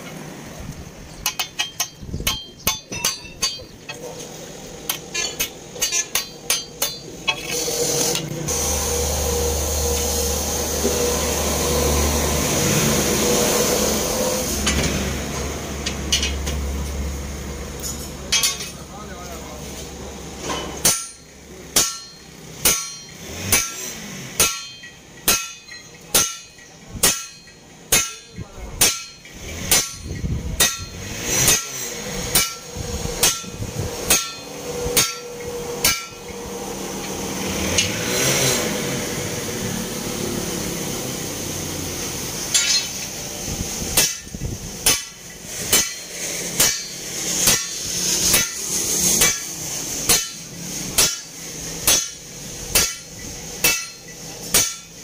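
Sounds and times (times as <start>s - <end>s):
sledgehammer ringing on steel: 1.2s - 3.8s, 5.2s - 7.3s, 20.5s - 23.8s, 24.4s - 36.4s, 42.5s - 43.0s, 44.0s - 48.6s, 50.1s - 55.0s.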